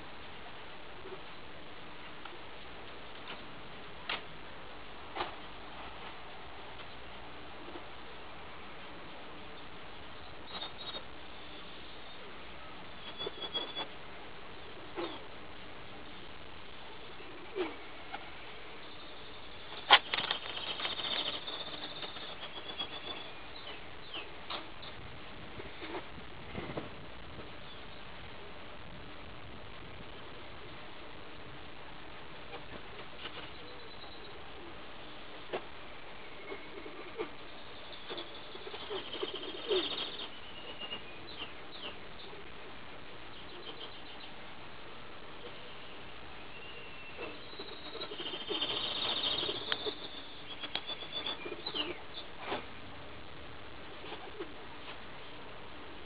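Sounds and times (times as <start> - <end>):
steady background hiss: 0.0 - 56.0
pigeons cooing: 14.6 - 15.3, 16.9 - 24.9, 36.2 - 42.7, 46.7 - 52.6
high bird chirps: 18.8 - 24.3
pigeon wings flapping: 19.8 - 22.6.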